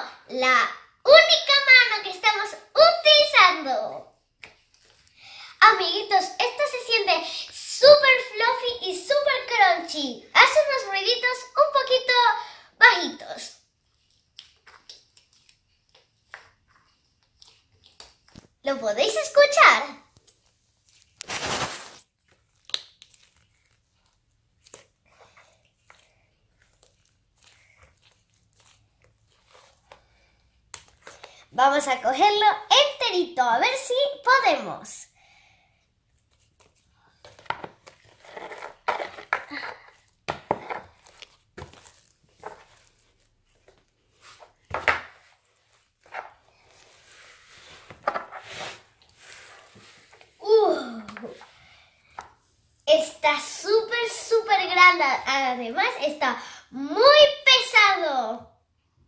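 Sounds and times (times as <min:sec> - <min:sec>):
slime squishing and crackling: 0:13.9 - 0:18.7, 0:20.2 - 0:32.1, 0:36.1 - 0:44.7.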